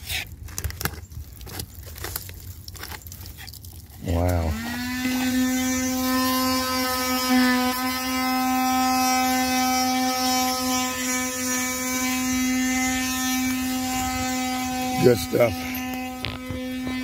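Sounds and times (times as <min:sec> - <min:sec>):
power tool motor running: 0:04.0 - 0:17.0.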